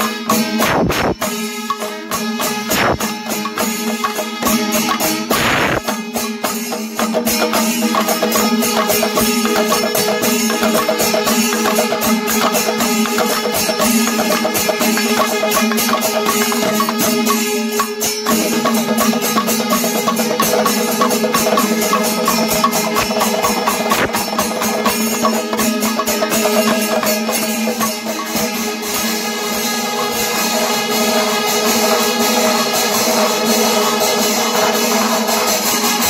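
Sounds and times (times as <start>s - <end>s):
cymbals beating: 0.0s - 36.0s
drums beating fast rhythm: 0.0s - 36.0s
steady held tone: 16.3s - 34.0s.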